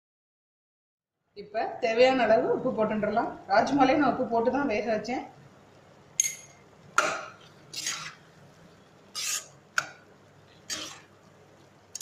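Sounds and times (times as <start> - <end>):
spatula scraping through beans: 7.7 - 8.3, 9.1 - 9.6, 10.5 - 11.2.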